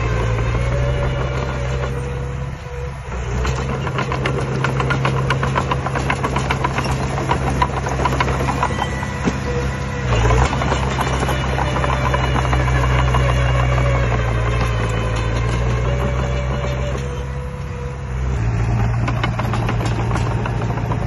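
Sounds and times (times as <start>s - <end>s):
diesel engine running: 0.0s - 21.0s
sharp clicks and knocks: 3.4s - 9.4s, 18.8s - 21.0s.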